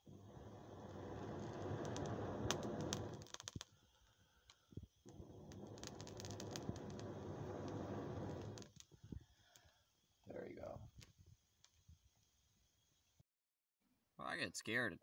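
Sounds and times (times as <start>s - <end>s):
person blowing into fire: 0.0s - 9.9s
burning twigs crackling: 0.0s - 11.7s.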